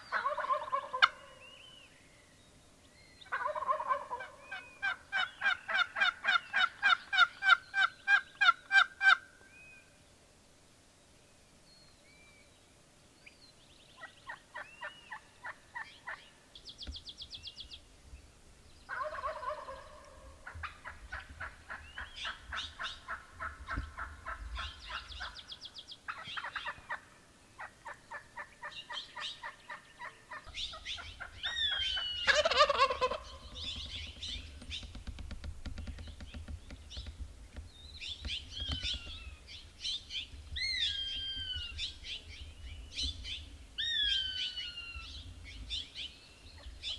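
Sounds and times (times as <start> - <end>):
songbirds trilling and whistling: 0.0 - 10.0, 11.7 - 46.9
turkey gobbling: 0.1 - 1.3, 3.3 - 9.2, 18.9 - 25.4, 27.6 - 33.6.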